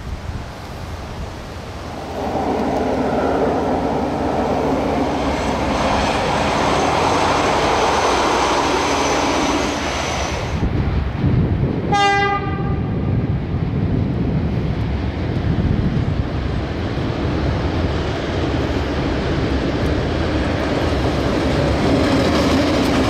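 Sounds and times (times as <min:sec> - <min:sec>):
railcar passing on rails: 0:00.0 - 0:23.0
diesel locomotive rumble: 0:01.2 - 0:23.0
steady high whine: 0:01.6 - 0:10.7
locomotive horn blast: 0:11.9 - 0:12.9.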